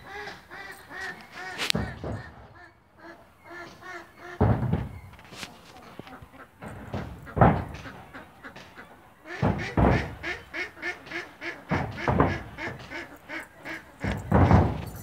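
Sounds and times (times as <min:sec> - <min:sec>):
farm animals calling: 0:00.0 - 0:15.0.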